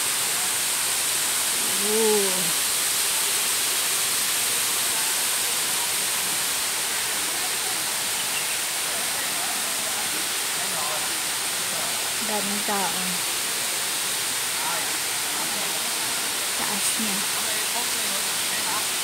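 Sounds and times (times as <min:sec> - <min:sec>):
waterfall pouring into a pool: 0:00.0 - 0:19.0
person calling out: 0:01.6 - 0:02.6.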